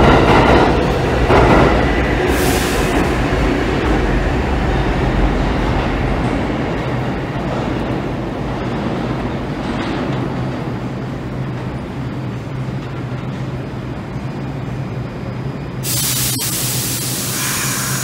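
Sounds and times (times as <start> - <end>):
subway train hum and rumble: 0.0 - 18.0
loud hiss of air: 2.3 - 3.4, 15.8 - 18.0.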